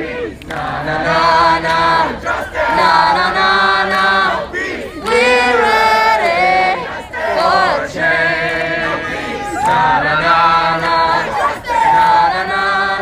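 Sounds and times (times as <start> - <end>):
crowd noise: 0.0 - 13.0
voices singing together: 0.0 - 13.0.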